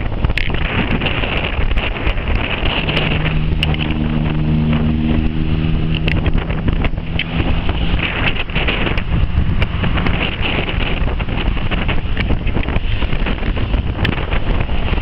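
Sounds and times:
wind buffeting microphone: 0.0s - 15.0s
motorcycle engine running: 1.0s - 14.9s
steady droning tone: 1.4s - 11.5s.

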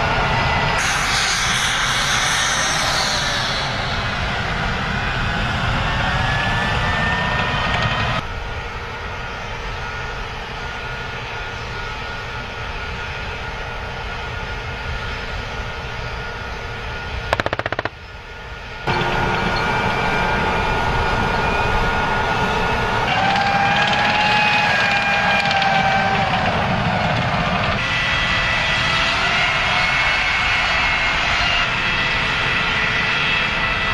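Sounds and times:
tank turbine engine whine: 0.0s - 33.9s
machine-gun fire: 17.3s - 18.0s.

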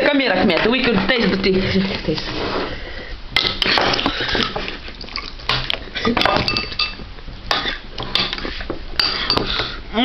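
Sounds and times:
spoons clinking on ceramic bowls: 6.1s - 8.3s.

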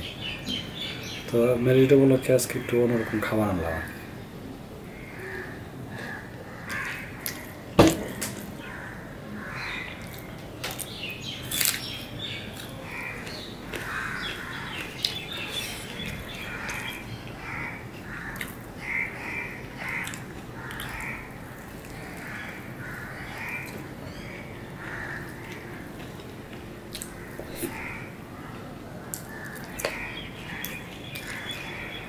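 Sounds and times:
chewing and mouth smacking: 19.9s - 22.0s, 26.9s - 27.8s.

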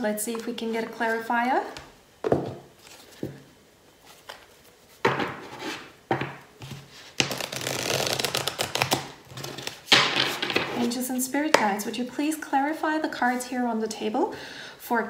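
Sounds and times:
cards riffling: 7.2s - 10.4s.

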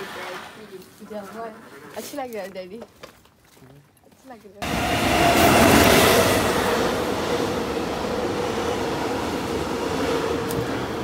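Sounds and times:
electric train passing: 4.6s - 11.0s.

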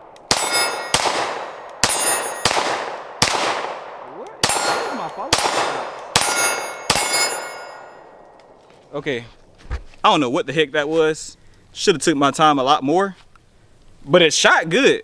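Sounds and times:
pistol shots echoing: 0.0s - 8.6s
steel target clanging: 0.3s - 2.6s, 4.4s - 8.2s.

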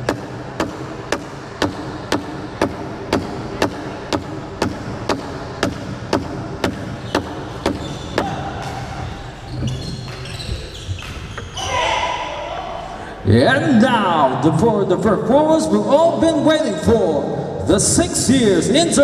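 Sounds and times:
sharp knocks echoing in a hall: 0.0s - 13.0s.

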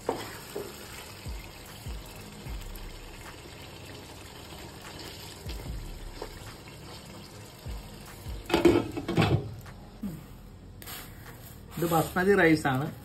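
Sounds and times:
faint wet sizzle: 0.0s - 13.0s
pot or utensil clattering: 8.5s - 9.6s.

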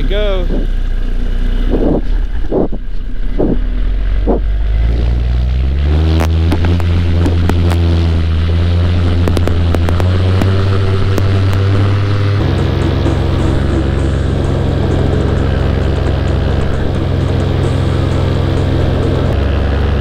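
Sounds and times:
paramotor engine droning: 0.0s - 20.0s
wind buffeting the microphone: 1.6s - 4.5s
sharp ticks: 9.2s - 11.8s.

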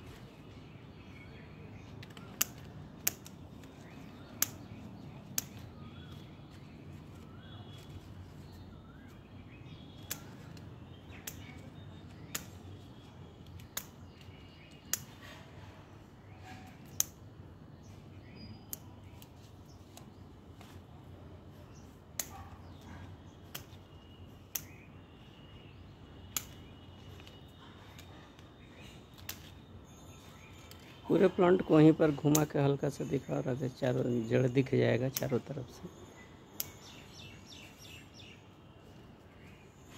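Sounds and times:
scissors snipping: 2.0s - 5.7s, 10.0s - 12.6s, 13.4s - 15.3s, 16.7s - 17.2s, 22.2s - 23.9s, 24.5s - 24.8s, 26.3s - 28.5s, 29.1s - 29.6s, 32.3s - 32.6s, 35.1s - 35.4s, 36.6s - 36.9s.

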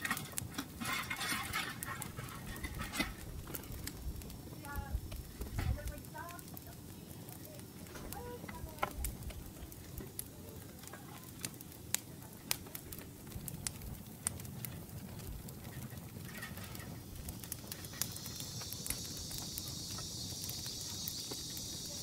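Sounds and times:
insects buzzing: 0.0s - 11.9s, 16.2s - 22.0s.

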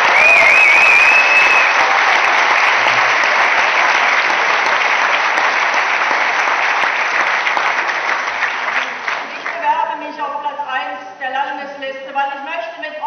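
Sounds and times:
audience applauding: 0.0s - 9.7s.

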